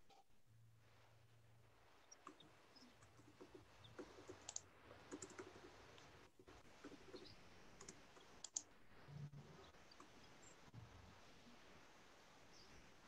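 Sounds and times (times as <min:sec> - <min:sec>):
computer clicks: 0:02.1 - 0:06.1, 0:06.8 - 0:08.7.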